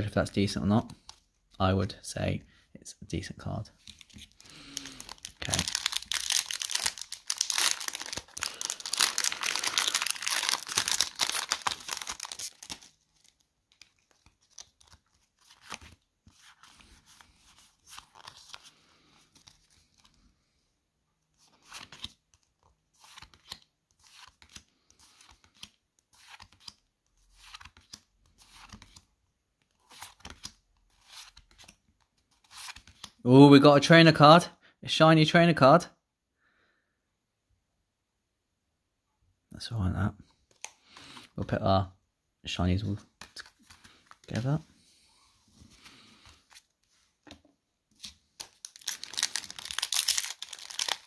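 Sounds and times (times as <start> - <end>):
cards rustling and sliding: 0.8 - 1.5, 3.8 - 20.2, 21.3 - 33.2, 40.4 - 41.4, 43.1 - 51.0
foil wrapper tearing and crinkling: 4.5 - 13.4, 48.4 - 51.0.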